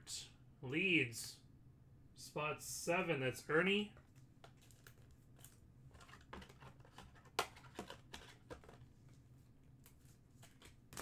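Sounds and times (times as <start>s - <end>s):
faint steady hum: 0.0s - 11.0s
cards rustling and clicking: 4.0s - 9.2s, 9.8s - 11.0s.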